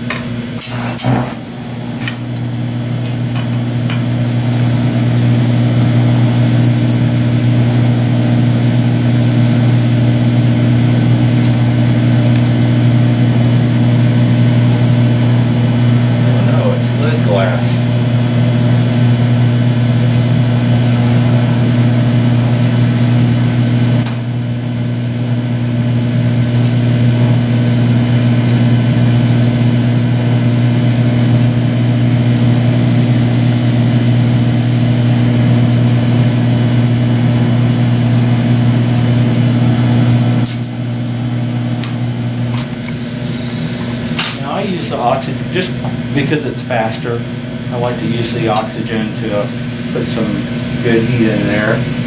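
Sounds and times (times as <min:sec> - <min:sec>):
burner flame hissing: 0:00.6 - 0:24.6, 0:26.0 - 0:52.0.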